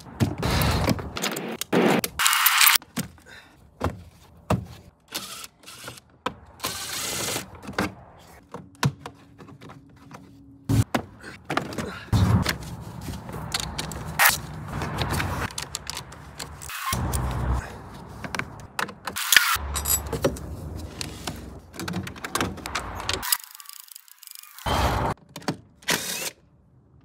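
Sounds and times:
clicks knocks and scrapes of parts: 7.2 - 25.8.

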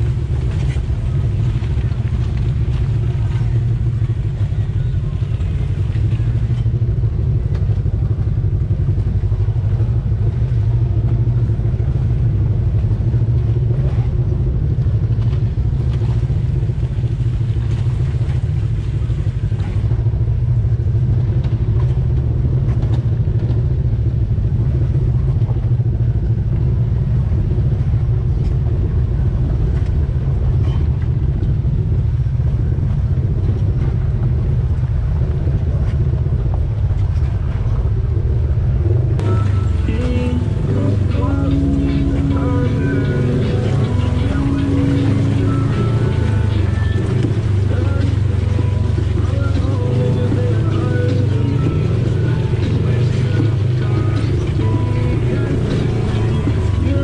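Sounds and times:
off-road vehicle engine droning: 0.0 - 57.0.

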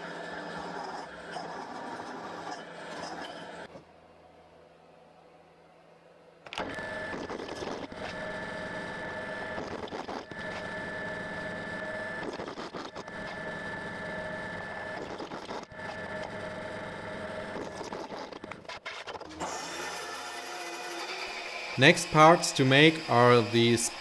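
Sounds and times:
drill press cutting steel: 14.4 - 24.0.

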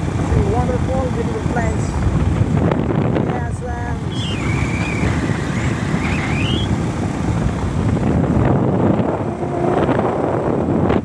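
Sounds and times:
road and engine rumble: 0.0 - 11.0
wind buffeting microphone: 0.0 - 11.0
thin high whistle: 4.1 - 6.7.

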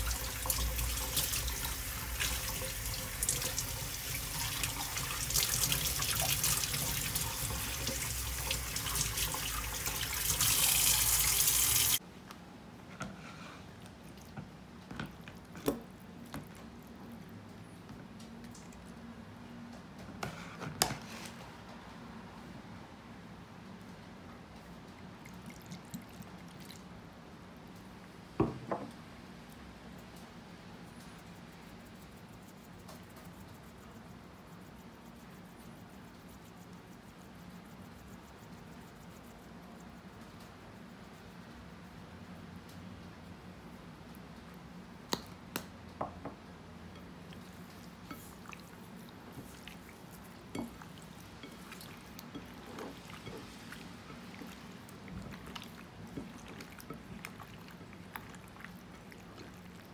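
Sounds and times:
hands rinsing leaves: 0.0 - 12.0, 47.0 - 59.9
tap water running into sink: 0.0 - 12.0
low steady hum: 29.5 - 59.9.

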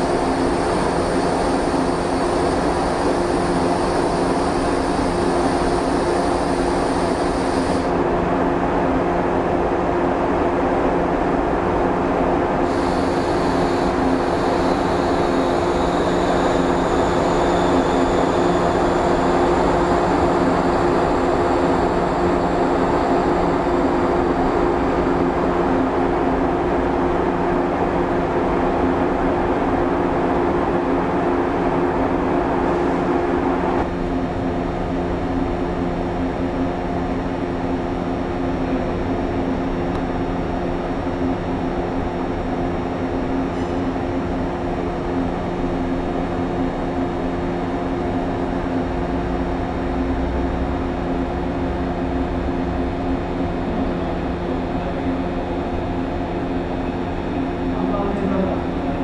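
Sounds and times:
faint high whine falling in pitch: 0.0 - 8.0, 12.6 - 26.0
electric train running hum: 0.0 - 59.0.

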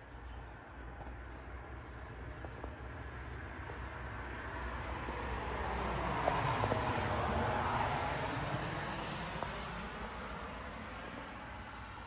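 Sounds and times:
vehicle passing by: 4.2 - 12.0.

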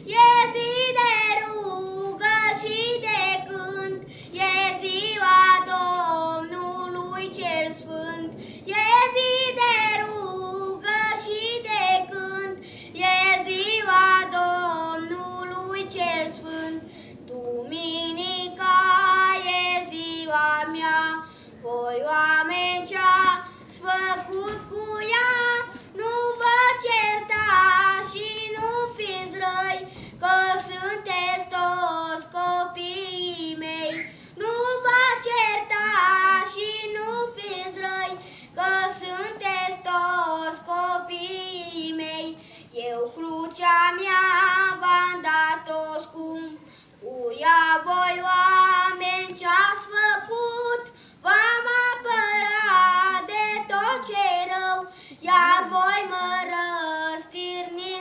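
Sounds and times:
boy singing: 0.0 - 58.0
short breaths: 4.0 - 4.4, 8.3 - 8.7, 12.6 - 13.0, 16.8 - 17.3, 21.2 - 21.6, 23.4 - 23.7, 29.8 - 30.2, 34.0 - 34.4, 38.2 - 38.6, 42.4 - 42.7, 46.6 - 47.0, 50.8 - 51.2, 54.8 - 55.2.

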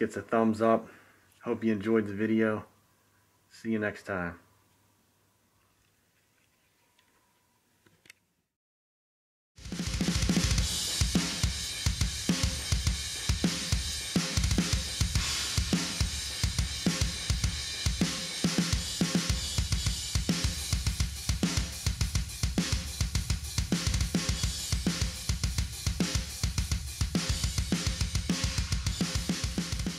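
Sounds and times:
fast metal drumming: 9.6 - 29.9.

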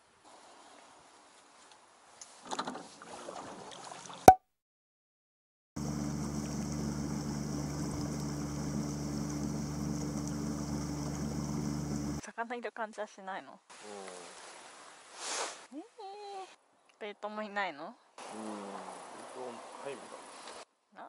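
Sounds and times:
boat motor humming: 5.8 - 12.2
water washing along hull: 5.8 - 12.2.

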